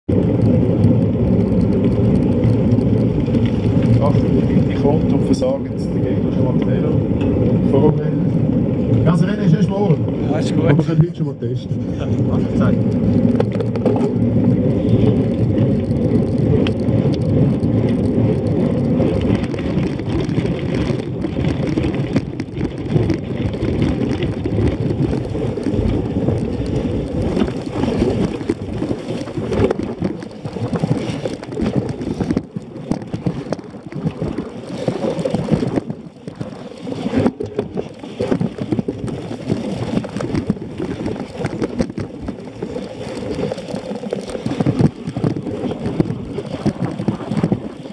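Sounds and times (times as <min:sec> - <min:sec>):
bike rattling over bumpy grass: 0:00.1 - 0:47.9.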